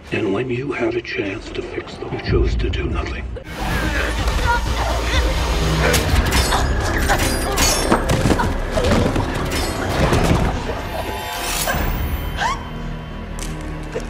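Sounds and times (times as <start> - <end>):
dramatic music: 0.0 - 14.0.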